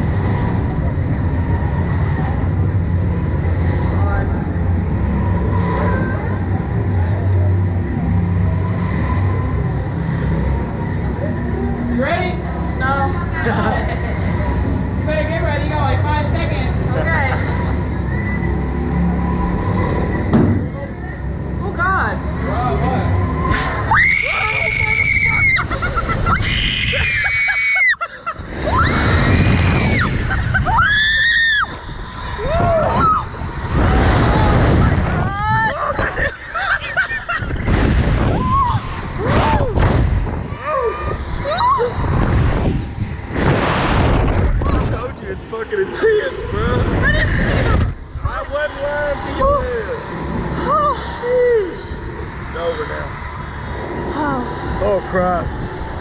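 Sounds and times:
ride machinery rumbling: 0.0s - 56.0s
wind rushing on microphone: 28.4s - 36.3s, 37.0s - 45.7s, 46.3s - 50.8s.

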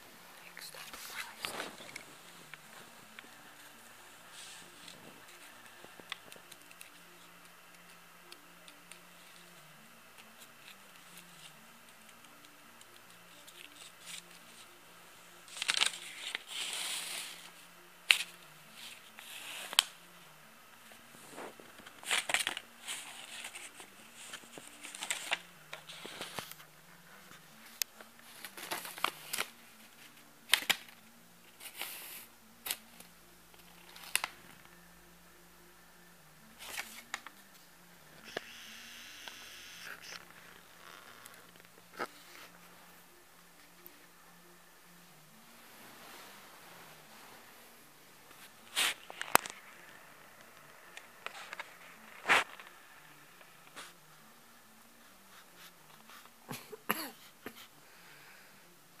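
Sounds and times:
rustling and crackling: 0.0s - 7.0s
faint low hum: 0.0s - 59.0s.

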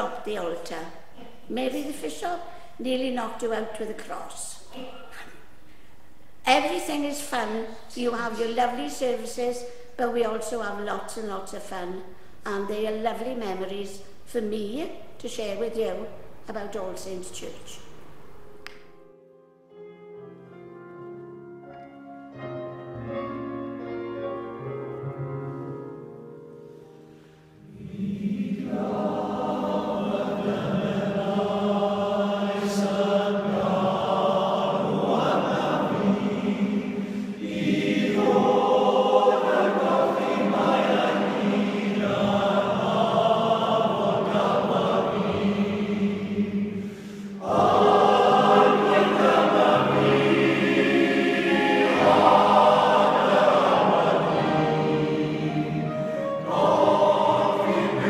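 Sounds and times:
soft instrumental notes: 18.3s - 27.9s
choir singing: 27.6s - 58.0s.

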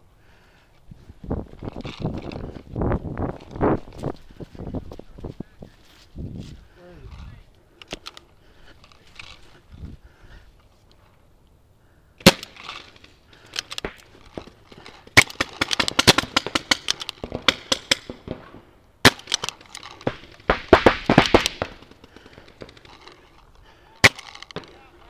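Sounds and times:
paintball markers firing: 12.2s - 23.2s, 24.0s - 25.0s.

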